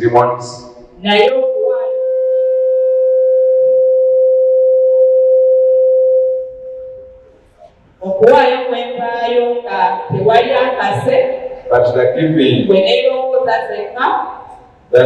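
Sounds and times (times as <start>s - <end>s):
microphone feedback tone: 1.1s - 7.7s.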